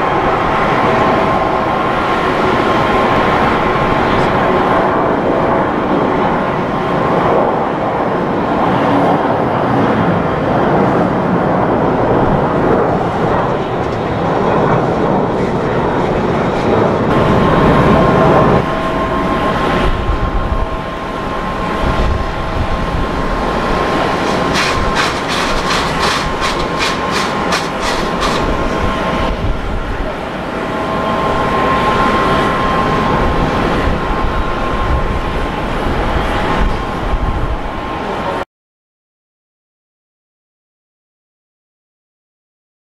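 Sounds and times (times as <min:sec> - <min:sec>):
jet engines whining: 0:00.0 - 0:38.4.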